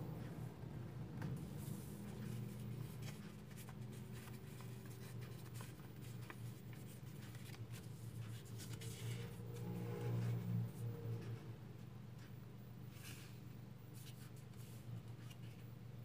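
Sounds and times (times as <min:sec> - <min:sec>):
paper rustling and crinkling: 0:01.6 - 0:09.2.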